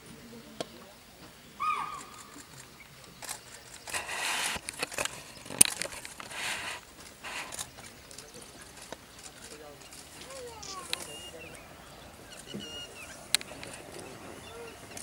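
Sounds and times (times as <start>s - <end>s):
soft rustling: 2.0s - 15.0s.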